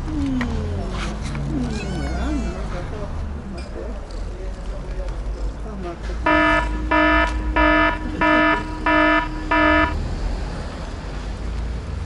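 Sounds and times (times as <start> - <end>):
electronic alarm buzzer beeps: 6.3 - 10.0.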